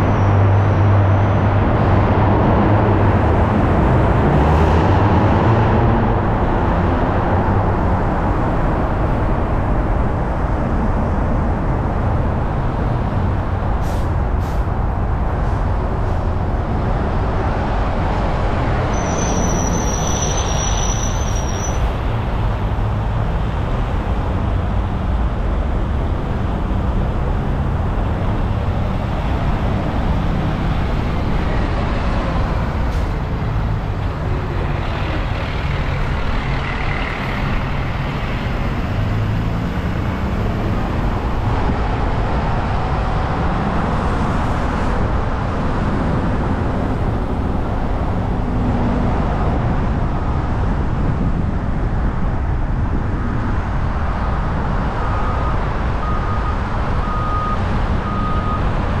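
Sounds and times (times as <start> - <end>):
car engine and tyre rumble: 0.0 - 59.0
faint high beeps: 55.0 - 58.6.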